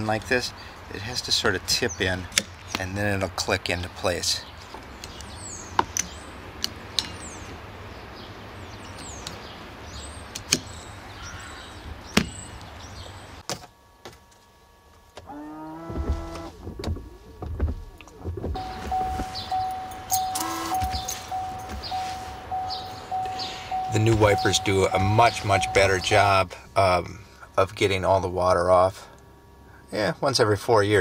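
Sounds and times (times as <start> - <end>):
birds chirping: 4.1 - 13.4, 18.6 - 26.5
windshield wiper motor running: 15.1 - 26.4
wipers thumping: 15.9 - 26.3.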